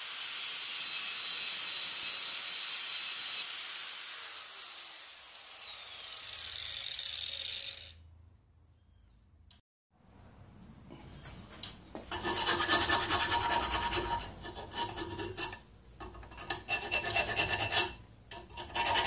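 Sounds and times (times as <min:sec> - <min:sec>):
angle grinder whining: 0:00.0 - 0:08.0.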